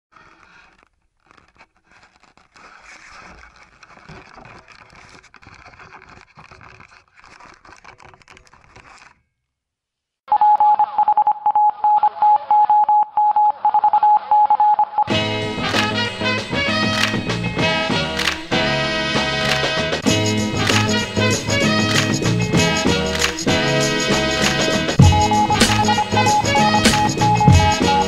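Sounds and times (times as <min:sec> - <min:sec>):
electronic beeping tone: 0:10.3 - 0:15.1, 0:25.0 - 0:28.0.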